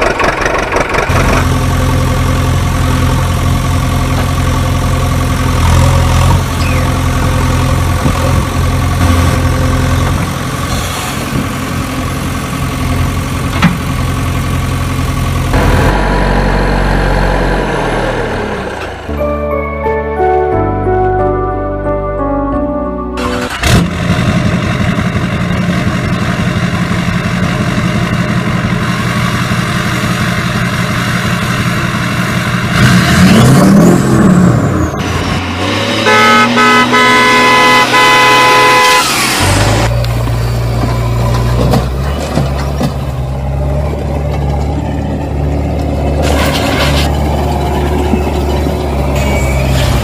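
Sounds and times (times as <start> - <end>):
truck engine running and revving: 0.0 - 19.8, 23.2 - 50.0
truck horn honking: 15.6 - 18.5, 19.1 - 23.8, 35.0 - 39.9.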